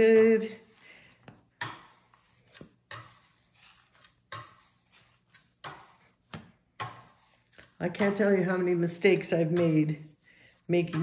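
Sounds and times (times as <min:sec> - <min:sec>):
metal scraper scraping on stone: 0:01.6 - 0:11.0.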